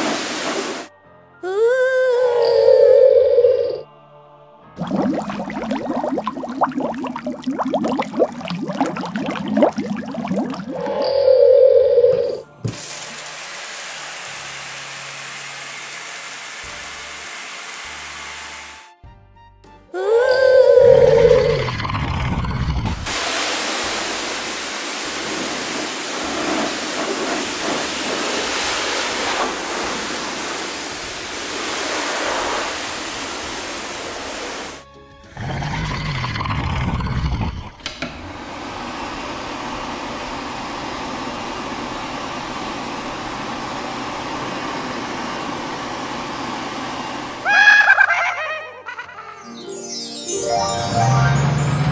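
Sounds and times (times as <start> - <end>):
hiss of liquid spray: 0.0 - 0.9, 23.1 - 34.8
background music: 0.9 - 10.9, 18.6 - 22.7, 34.8 - 36.7, 49.4 - 51.9.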